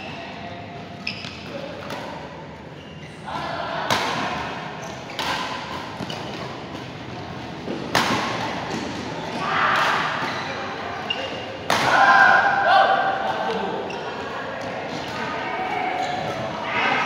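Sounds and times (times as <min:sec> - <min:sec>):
shoes squeaking on court: 0:01.0 - 0:01.6, 0:04.8 - 0:07.3, 0:10.1 - 0:11.6, 0:15.8 - 0:16.5
racket hitting shuttlecock: 0:05.1 - 0:07.0, 0:07.6 - 0:09.1.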